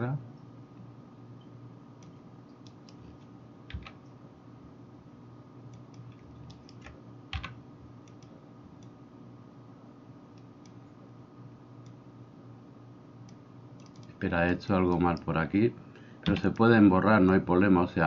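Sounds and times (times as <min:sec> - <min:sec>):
steady low hum: 0:00.0 - 0:18.0
keyboard and mouse clicks: 0:02.0 - 0:04.0, 0:05.7 - 0:09.0, 0:13.3 - 0:15.3, 0:16.2 - 0:17.4.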